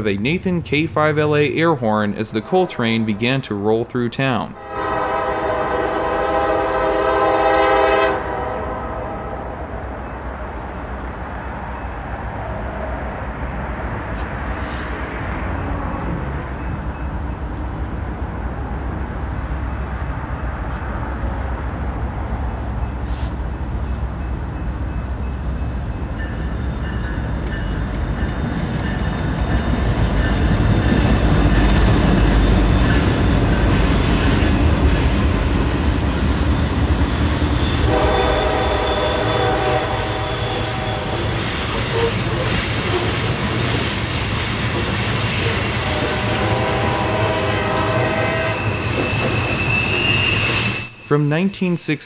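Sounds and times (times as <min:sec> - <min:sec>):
diesel locomotives rumbling: 0:00.0 - 0:52.0
locomotive air horn: 0:04.6 - 0:09.5, 0:37.7 - 0:43.0, 0:45.4 - 0:51.0
train wheels clattering on rails: 0:22.7 - 0:50.8.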